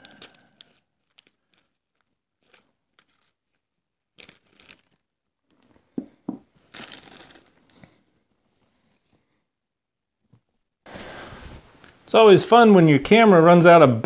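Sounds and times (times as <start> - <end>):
plastic bag rustling and crinkling: 0.0 - 5.7, 6.5 - 7.8.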